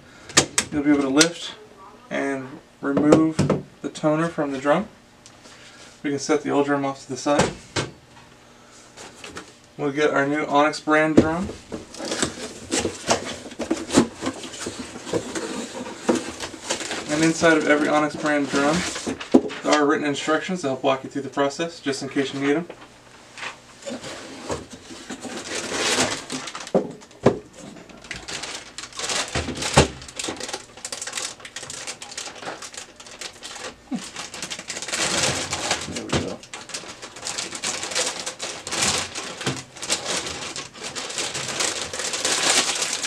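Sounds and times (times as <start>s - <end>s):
cardboard and foil rustling: 11.2s - 19.8s, 22.0s - 43.0s.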